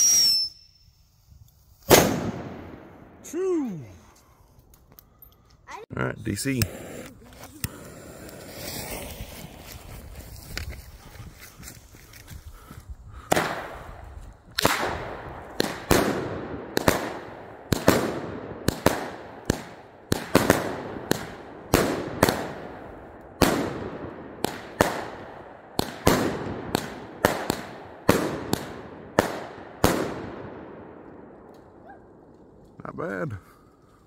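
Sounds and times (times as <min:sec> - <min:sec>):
firework bangs: 0:01.8 - 0:03.3, 0:14.6 - 0:31.3
fuse burning: 0:06.2 - 0:10.8.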